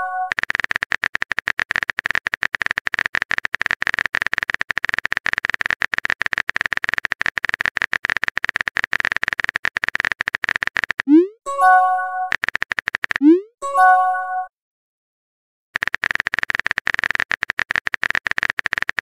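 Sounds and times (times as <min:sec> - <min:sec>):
keyboard typing clicks: 0:00.0 - 0:14.5, 0:15.8 - 0:19.0.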